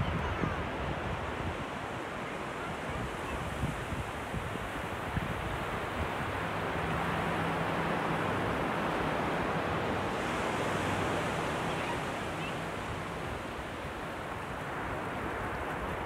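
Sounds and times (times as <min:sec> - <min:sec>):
ocean waves breaking on beach: 0:00.0 - 0:16.0.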